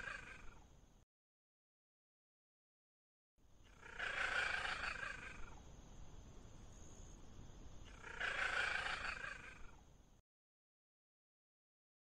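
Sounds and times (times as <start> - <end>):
low background hiss: 0.0 - 1.0, 3.4 - 10.2
cat calling: 7.9 - 9.8.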